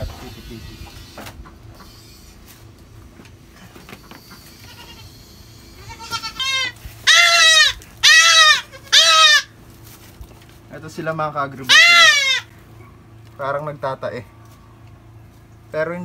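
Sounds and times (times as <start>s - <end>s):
goat kid bleating: 4.4s - 9.6s, 11.6s - 12.6s.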